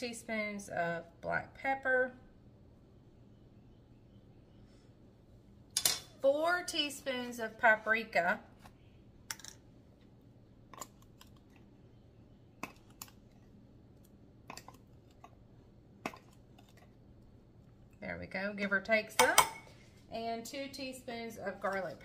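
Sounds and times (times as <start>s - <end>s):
woman speaking: 0.0s - 2.2s, 6.2s - 8.5s, 18.0s - 22.0s.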